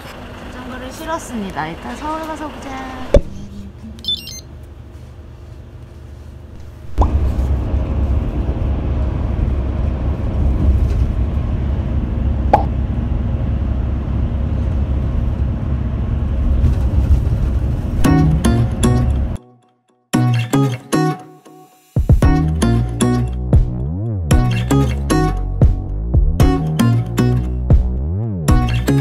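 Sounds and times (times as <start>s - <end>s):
bus engine and road rumble: 0.0s - 19.4s.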